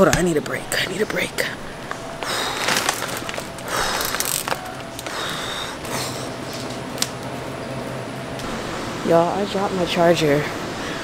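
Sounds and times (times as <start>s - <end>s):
plastic bag crinkling: 2.2s - 5.3s.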